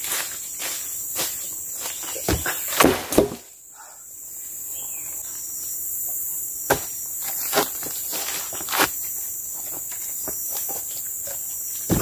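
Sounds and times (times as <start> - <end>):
footsteps crunching on dry leaves: 0.0 - 2.3
insects whining: 0.0 - 12.0.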